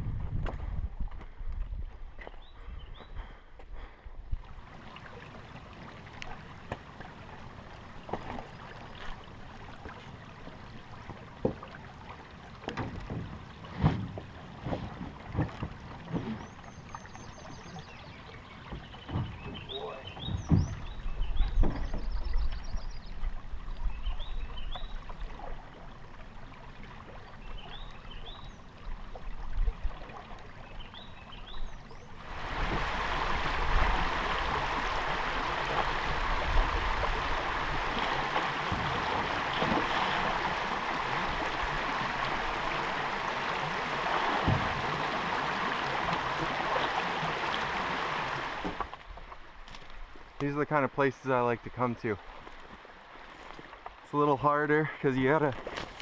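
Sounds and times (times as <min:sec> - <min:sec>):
small birds chirping: 0:02.2 - 0:03.4, 0:16.4 - 0:23.2, 0:30.6 - 0:32.2
river water running over rocks: 0:04.5 - 0:56.0
paddle knocking on canoe hull: 0:11.0 - 0:11.8, 0:12.6 - 0:16.4, 0:18.6 - 0:22.6, 0:32.5 - 0:46.9, 0:48.5 - 0:49.0.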